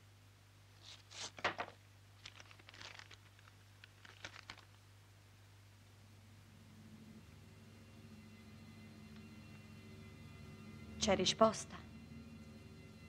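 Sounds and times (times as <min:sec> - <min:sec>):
low steady hum: 0:00.0 - 0:13.0
paper rustling and crinkling: 0:00.8 - 0:04.8.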